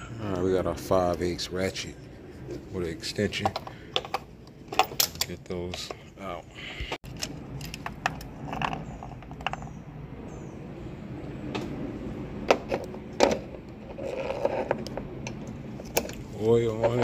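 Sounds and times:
low hum: 6.4s - 17.0s
metallic clicks of tools and plugs: 7.0s - 8.3s.

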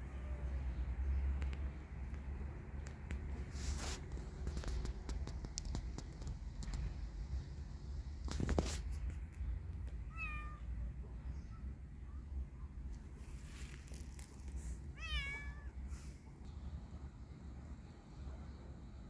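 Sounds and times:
noisy rustle: 1.4s - 10.0s, 12.8s - 16.6s
kitten meowing: 15.0s - 15.8s.

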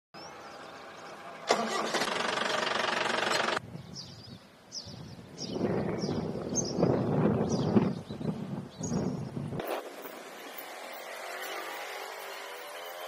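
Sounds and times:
engine running with fast pulse: 0.3s - 3.6s.

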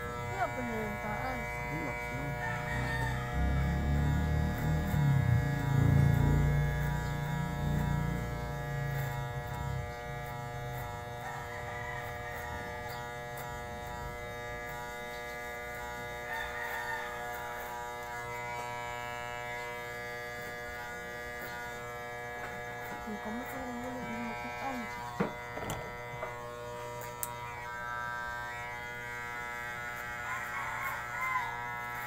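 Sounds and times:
electric hair clippers buzzing: 0.0s - 32.0s
rooster crowing: 2.2s - 3.9s, 11.2s - 13.0s, 16.3s - 17.7s, 30.2s - 32.0s.

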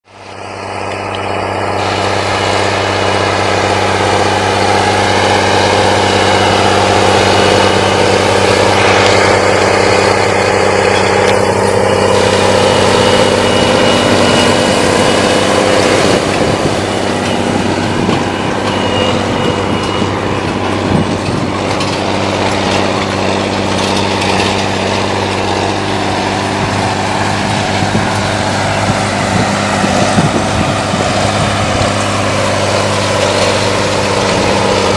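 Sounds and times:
tractor diesel engine running: 0.0s - 34.9s.

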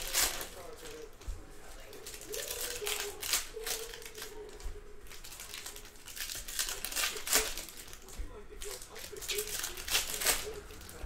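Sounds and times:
wrapper crinkling: 0.0s - 11.0s.

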